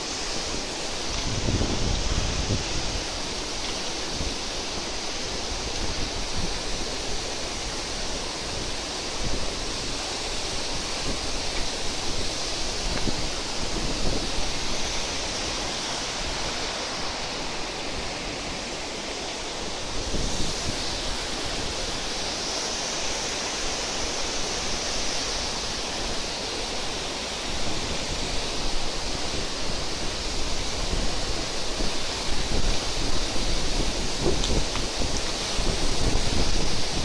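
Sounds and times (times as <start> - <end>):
wind buffeting microphone: 0.0 - 22.9, 23.6 - 37.0
fast river rushing: 0.0 - 37.0
waterfall crashing onto rocks: 0.0 - 37.0.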